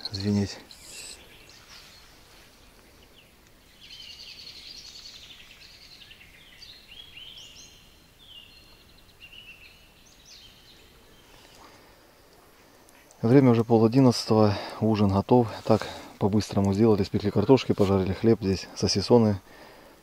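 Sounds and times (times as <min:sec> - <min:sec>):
bird trilling: 0:00.0 - 0:01.8
high gliding bird chirps: 0:00.0 - 0:11.6.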